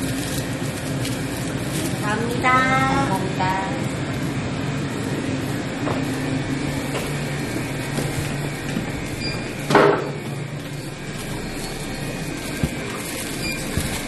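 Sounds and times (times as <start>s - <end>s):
store background hum: 0.0s - 14.0s
loud rustling: 4.9s - 14.0s.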